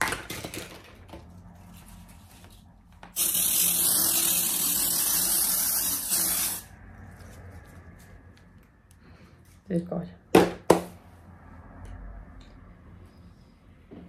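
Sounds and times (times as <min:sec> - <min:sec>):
spray bottle hissing: 0:03.2 - 0:06.7.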